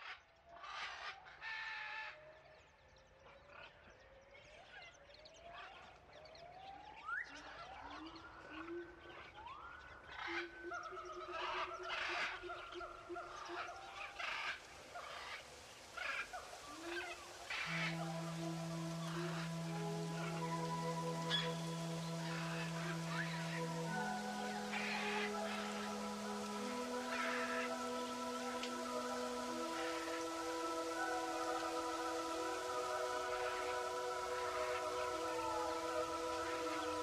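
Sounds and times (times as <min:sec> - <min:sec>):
music tones: 0:17.5 - 0:37.0.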